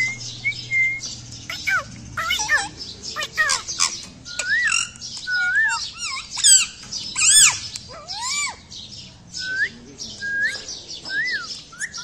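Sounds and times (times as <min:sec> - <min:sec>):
parakeet squawking and chirping: 0:00.0 - 0:09.0.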